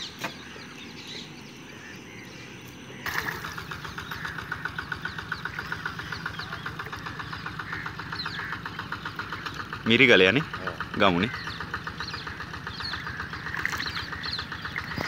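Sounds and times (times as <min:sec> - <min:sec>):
small engine running: 0:03.1 - 0:15.0.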